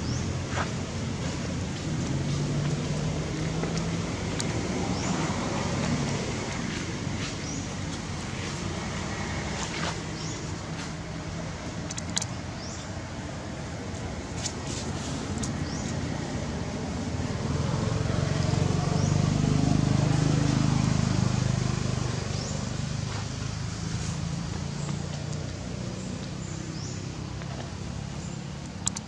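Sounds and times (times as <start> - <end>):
passing vehicle engine hum: 0.0 - 29.0.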